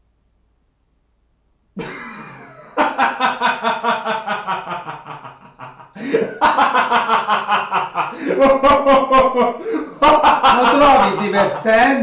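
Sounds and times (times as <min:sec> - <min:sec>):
man laughing loudly: 0:01.8 - 0:12.0.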